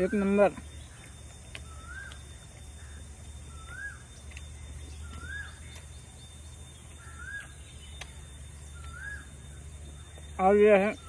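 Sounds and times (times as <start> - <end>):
bird calling: 0.0 - 11.0.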